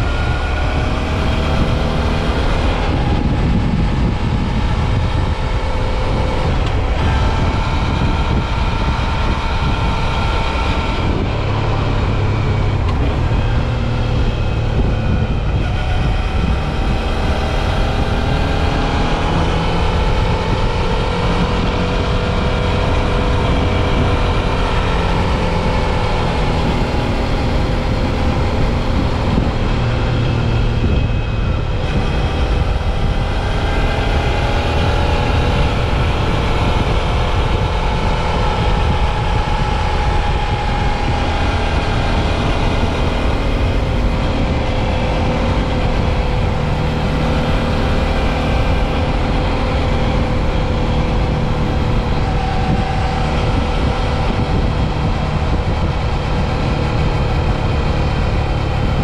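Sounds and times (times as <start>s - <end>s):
motorcycle engine running: 0.0s - 59.0s
wind and road noise: 0.0s - 59.0s.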